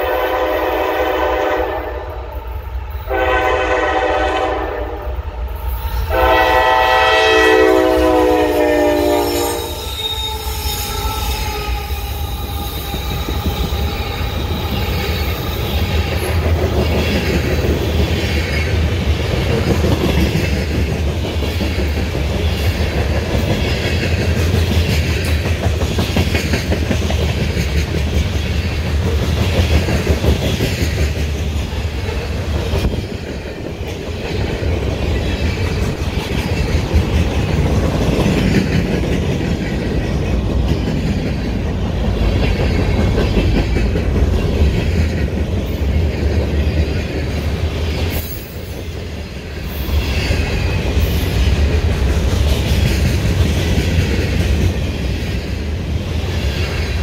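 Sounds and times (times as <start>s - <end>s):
locomotive air horn: 0.0s - 2.2s, 3.1s - 5.2s, 6.1s - 12.1s
train wheels clacking: 5.8s - 57.0s
wheel squeal: 9.2s - 15.8s.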